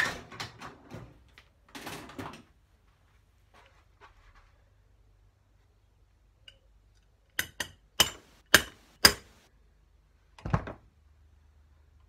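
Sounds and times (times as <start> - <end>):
hammer tapping metal rod: 7.4 - 9.4.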